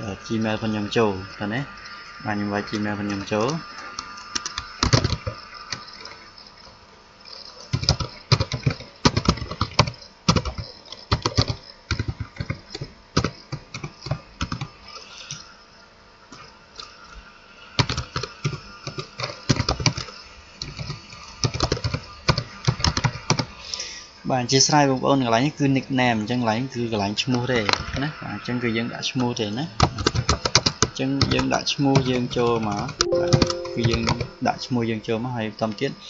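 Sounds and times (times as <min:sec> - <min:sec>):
typing on computer keyboard: 0:07.7 - 0:14.7, 0:20.8 - 0:23.4, 0:30.0 - 0:31.4.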